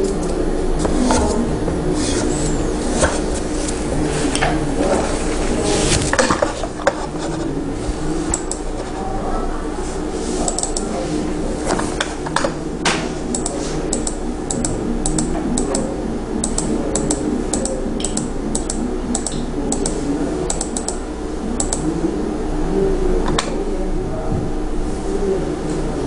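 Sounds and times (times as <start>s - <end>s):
room noise: 0.0s - 26.0s
keyboard and mouse clicking: 8.3s - 8.7s, 10.5s - 10.9s, 13.3s - 21.0s, 21.6s - 21.9s.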